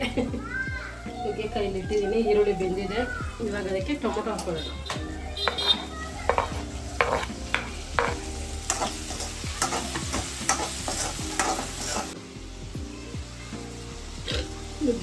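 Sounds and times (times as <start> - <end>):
food sizzling in oil: 0.2 - 15.0
spoon scraping in a pan: 5.4 - 12.2.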